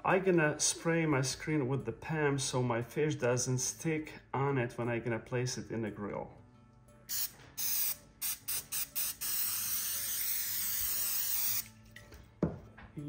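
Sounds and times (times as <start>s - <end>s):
aerosol spray hissing: 7.1s - 11.7s.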